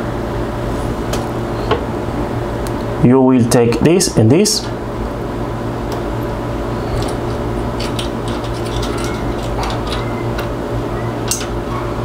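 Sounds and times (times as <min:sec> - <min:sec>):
steady low hum: 0:00.0 - 0:12.0
small clicks and scrapes: 0:07.0 - 0:10.5.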